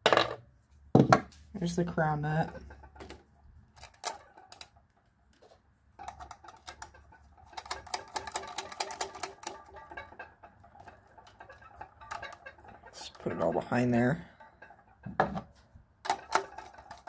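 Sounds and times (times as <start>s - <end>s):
small metal parts clicking: 3.8s - 4.8s, 6.0s - 9.8s.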